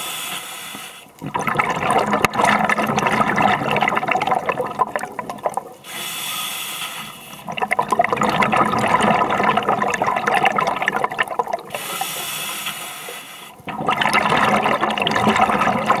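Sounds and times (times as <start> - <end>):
regulator inhalation hiss: 0.0 - 1.1, 5.8 - 7.5, 11.8 - 13.6
exhaled bubbles gurgling: 1.1 - 5.9, 7.2 - 16.0.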